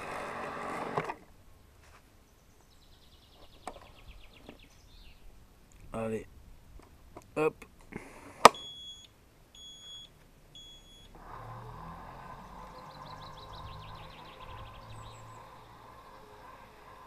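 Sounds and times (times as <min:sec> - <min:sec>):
mower motors whirring: 0:00.0 - 0:01.4, 0:08.4 - 0:17.0
short high beeps: 0:08.5 - 0:11.1.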